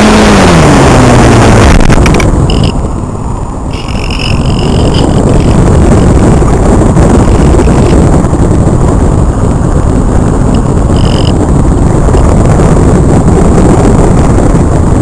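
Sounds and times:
wind rush and buffeting: 0.0 - 15.0
faint high whine: 1.2 - 12.4.

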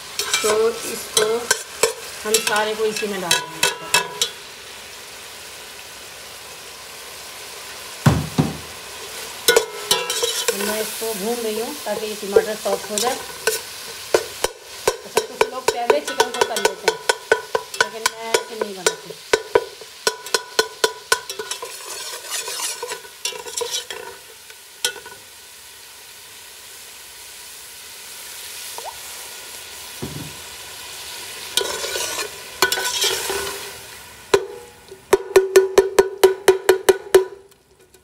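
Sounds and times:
frying sizzle: 0.0 - 38.0
spoon scraping a steel pot: 0.2 - 4.4, 9.5 - 10.9, 12.3 - 24.2, 31.6 - 33.7
spoon clinking against pot: 1.2 - 4.4, 9.5 - 10.7, 12.4 - 24.0.

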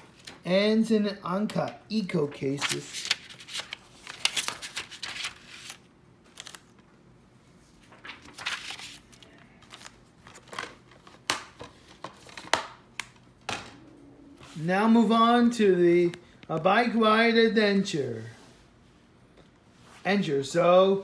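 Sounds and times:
paper rustling: 2.2 - 6.9, 7.7 - 12.6.

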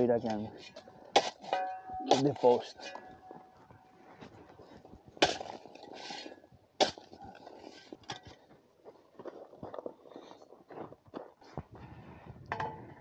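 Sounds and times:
shovel striking dirt: 0.2 - 3.2, 5.2 - 8.4
shovel scraping soil: 0.3 - 3.0, 5.2 - 8.4.

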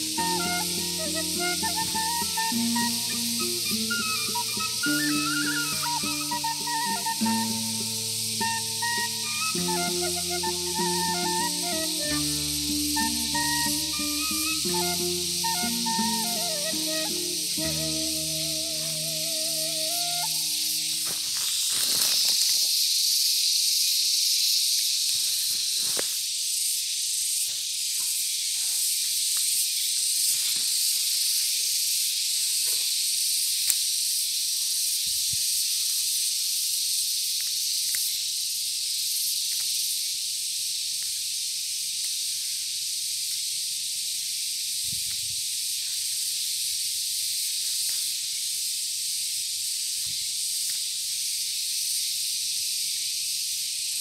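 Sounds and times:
leaves rustling by hand: 0.0 - 22.7
insects droning: 0.0 - 54.0.

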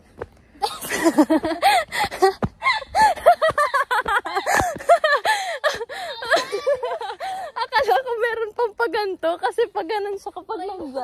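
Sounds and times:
women laughing hard: 0.6 - 7.7.

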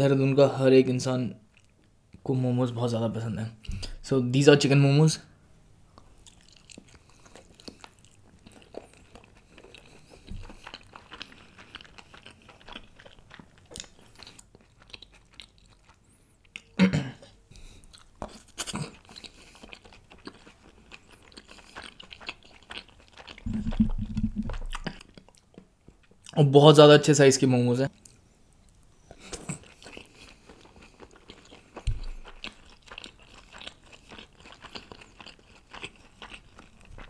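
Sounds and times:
close chewing with wet mouth clicks: 6.0 - 16.8, 17.6 - 26.4, 28.0 - 37.0.

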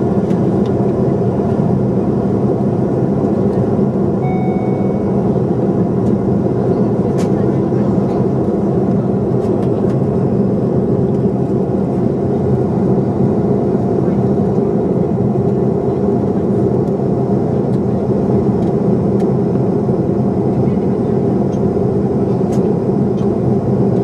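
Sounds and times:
airplane cabin engine drone: 0.0 - 24.0
low steady hum: 4.2 - 8.2.

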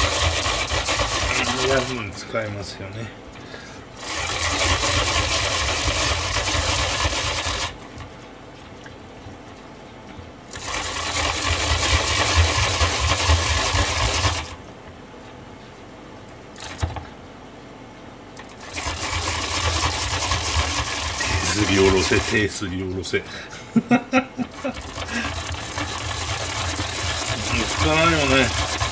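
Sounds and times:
radish grated on a grater: 0.0 - 2.0, 4.0 - 7.8, 10.6 - 14.6, 18.6 - 22.6, 24.5 - 28.9.

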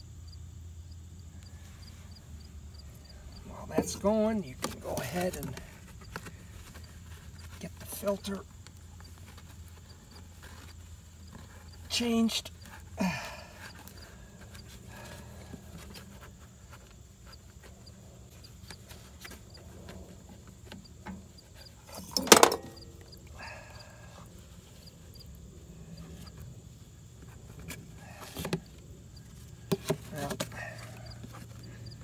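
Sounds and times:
metal tools clinking: 21.9 - 22.8.

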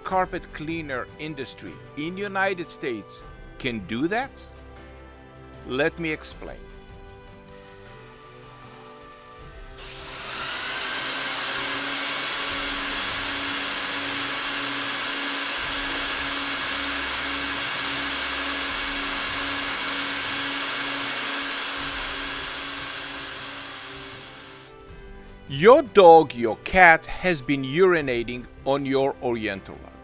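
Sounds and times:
rug-washing machine rushing: 9.8 - 24.7.

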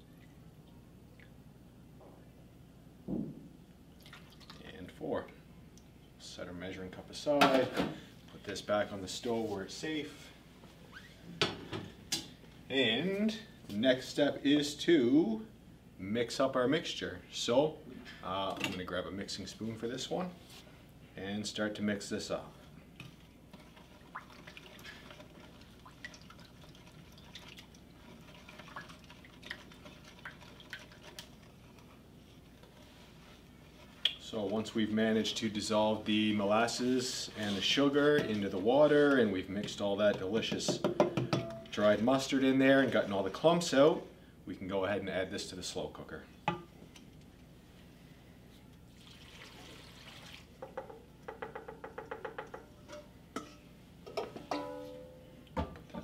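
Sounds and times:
liquid sloshing: 4.0 - 4.8, 22.9 - 34.5, 48.9 - 51.0
spoon tapping metal bowl: 40.7 - 41.7.

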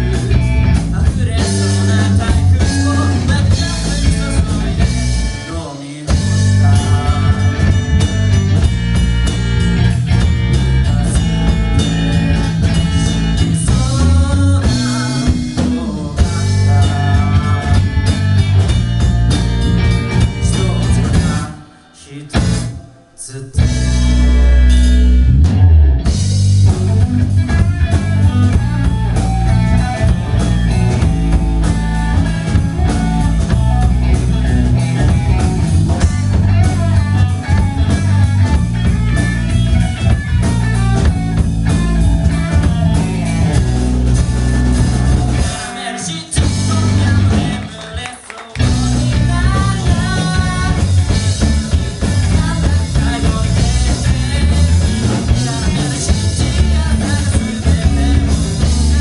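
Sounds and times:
person singing: 0.0 - 8.1, 10.5 - 18.8, 20.0 - 24.7, 44.7 - 59.0
drum kit: 0.0 - 59.0
electric guitars and bass: 0.0 - 59.0.

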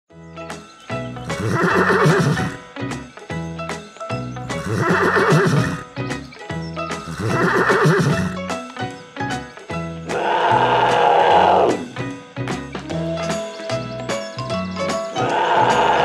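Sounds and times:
background music: 0.1 - 16.0
horse whinnying: 1.3 - 2.6, 4.6 - 5.9, 7.0 - 8.4, 10.1 - 11.9, 15.2 - 16.0.

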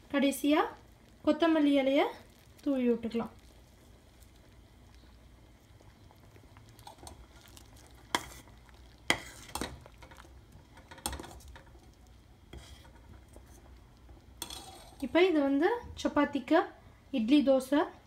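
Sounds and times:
spoon stirring thick gravy: 5.8 - 15.2.

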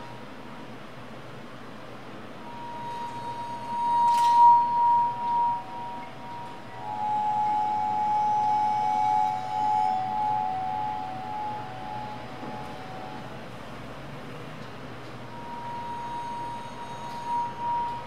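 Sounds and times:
glassy ringing tones: 2.5 - 13.3, 15.3 - 18.0.

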